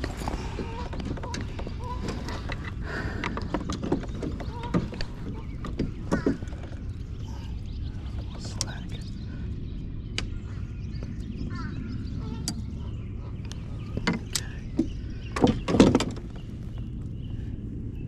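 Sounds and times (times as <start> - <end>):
handling clicks and knocks: 0.0 - 6.9, 13.4 - 17.0
steady low rumble: 0.0 - 18.0.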